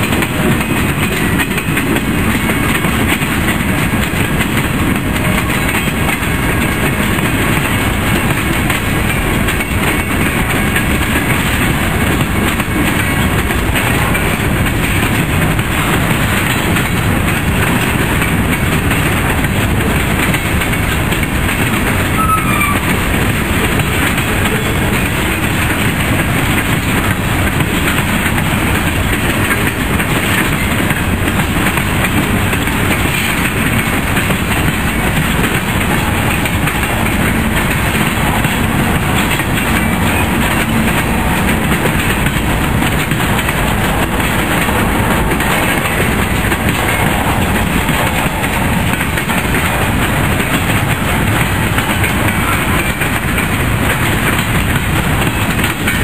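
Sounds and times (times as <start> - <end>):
train wheels rumbling on rail: 0.0 - 56.0
wheel squeal: 22.1 - 23.0.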